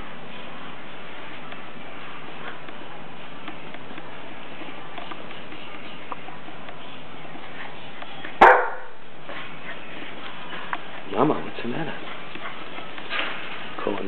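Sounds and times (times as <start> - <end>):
dog barking: 8.4 - 9.0.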